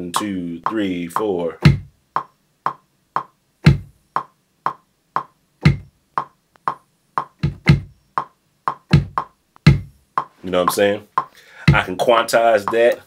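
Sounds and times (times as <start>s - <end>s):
metronome clicking: 0.0s - 11.4s, 12.6s - 13.0s
kick drum: 1.6s - 11.9s.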